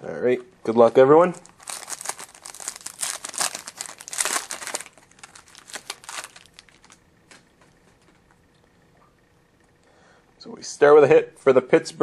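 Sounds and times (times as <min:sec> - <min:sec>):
plastic wrapper tearing and crinkling: 0:00.7 - 0:07.0.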